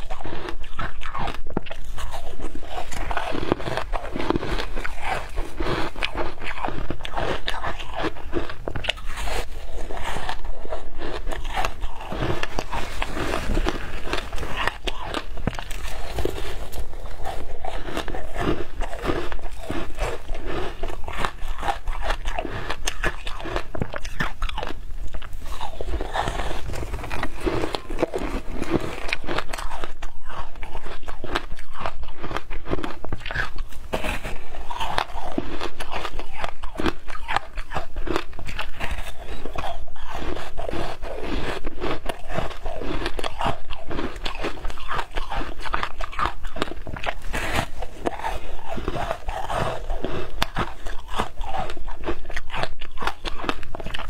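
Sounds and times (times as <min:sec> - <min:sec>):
ice crunching while chewed: 0:00.0 - 0:54.0.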